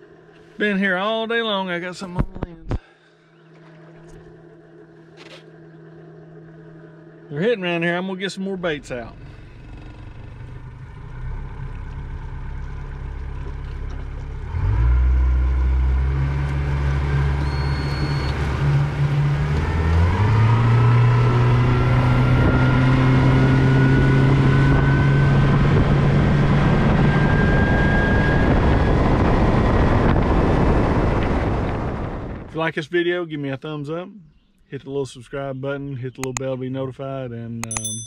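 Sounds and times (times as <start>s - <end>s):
outboard motor running: 0.0s - 0.8s, 3.1s - 28.9s.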